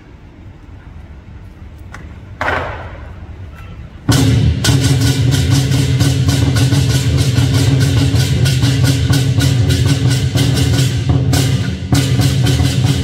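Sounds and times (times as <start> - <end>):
drum gong and cymbals playing: 4.0 - 13.0.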